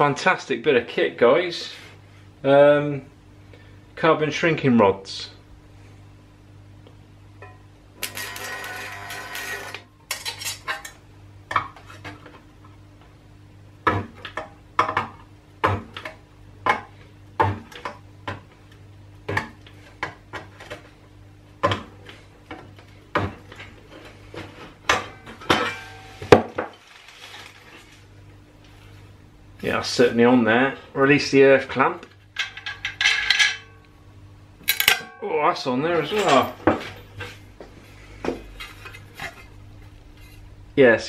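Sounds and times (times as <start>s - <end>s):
stud welder snapping: 8.0s - 11.0s
low hum: 32.2s - 41.0s.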